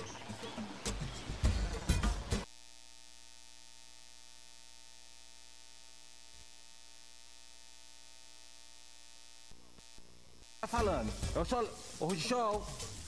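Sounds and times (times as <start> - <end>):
faint hiss: 9.5 - 13.0.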